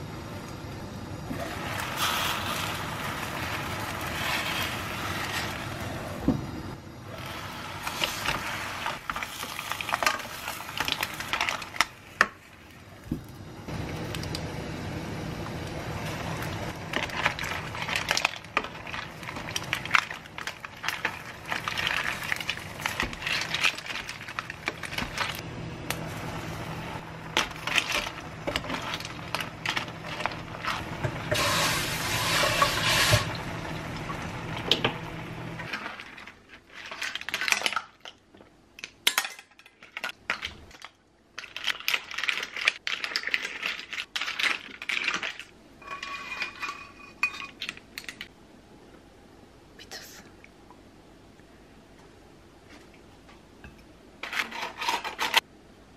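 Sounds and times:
pot bubbling: 0.0s - 38.2s
steady low hum: 10.0s - 35.7s.

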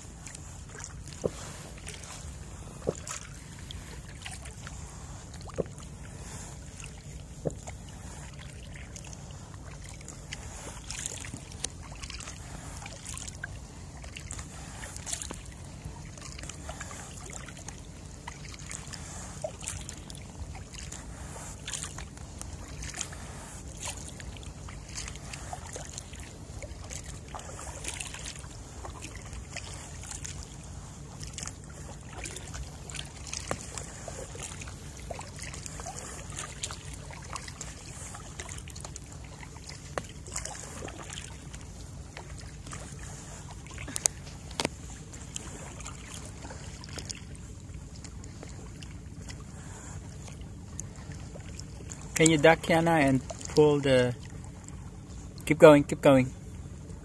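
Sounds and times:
paddle splashing in water: 0.0s - 56.2s.

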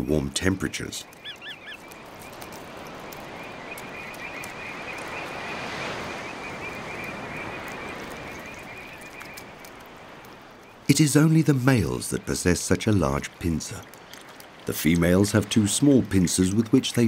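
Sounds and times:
bird call: 1.0s - 9.8s.

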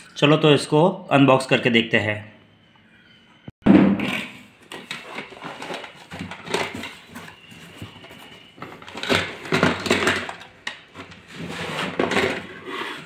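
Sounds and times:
cardboard and plastic packaging rustling: 4.4s - 13.0s.

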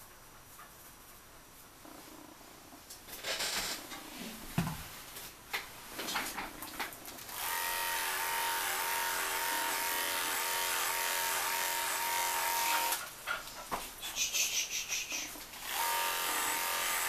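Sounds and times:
electric pet trimmer buzzing: 7.3s - 13.0s, 15.6s - 17.0s.

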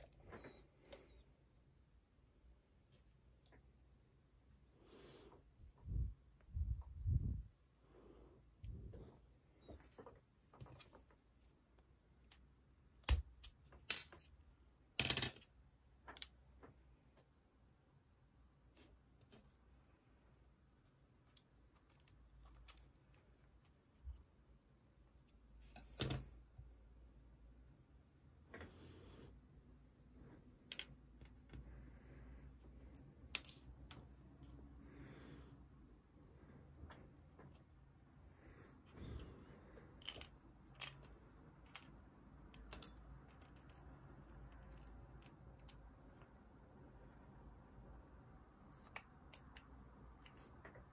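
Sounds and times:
small parts clicking and tapping: 9.7s - 14.3s, 14.9s - 17.3s, 20.8s - 24.3s, 39.8s - 46.5s, 47.7s - 50.9s.

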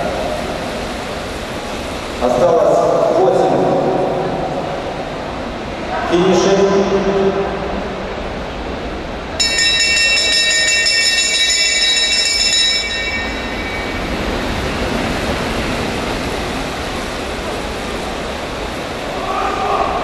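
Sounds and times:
indoor hall noise: 0.0s - 20.0s
bright lap bell ringing: 9.4s - 15.0s
track bikes passing: 9.4s - 19.4s.

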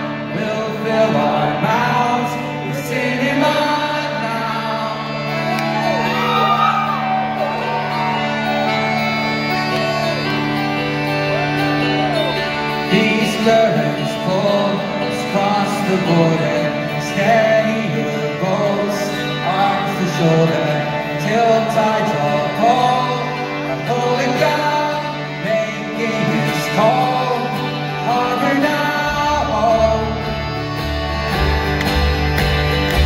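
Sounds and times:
acoustic guitar: 0.0s - 33.0s
full band playing: 0.0s - 33.0s
audience whooping: 5.1s - 12.6s.

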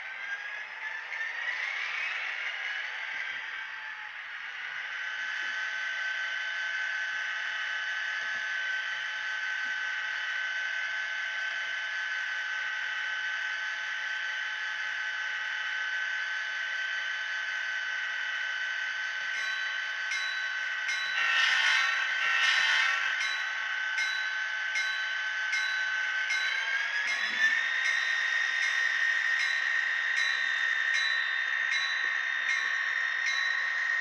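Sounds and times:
model diesel engine hum with whine: 0.0s - 34.0s.

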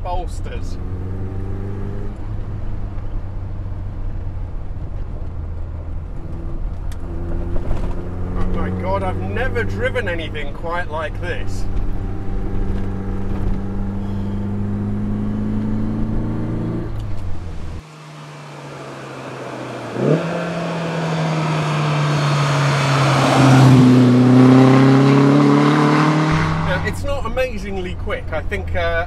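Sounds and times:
car engine under load: 0.0s - 29.0s
car accelerating past: 0.6s - 3.6s, 6.0s - 10.4s, 11.4s - 27.0s.

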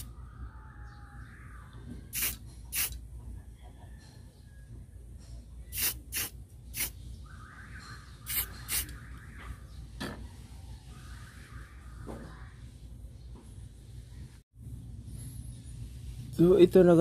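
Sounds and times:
spray paint hissing bursts: 2.1s - 3.0s, 5.7s - 7.0s, 8.3s - 9.0s.

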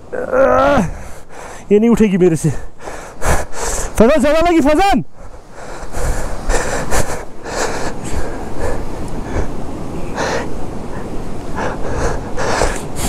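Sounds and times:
person gasping for breath: 5.6s - 13.0s.

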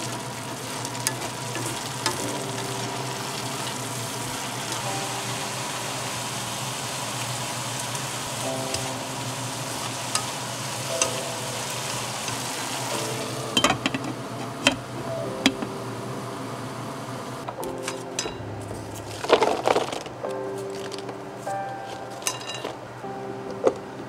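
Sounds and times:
vegetables sizzling in a frying pan: 0.0s - 17.3s.

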